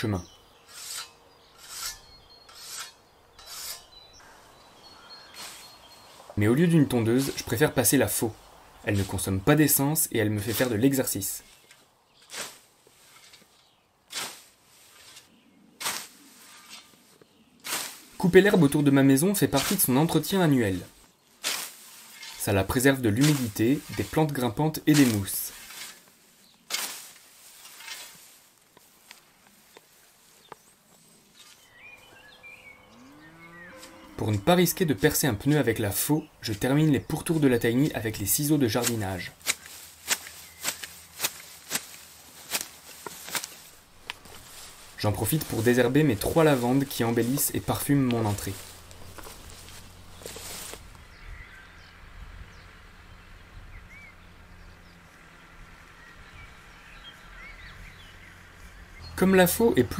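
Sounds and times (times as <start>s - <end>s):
faint bird chirps: 0.0s - 7.6s, 29.6s - 35.1s, 48.4s - 59.2s
low steady rumble: 48.6s - 59.6s.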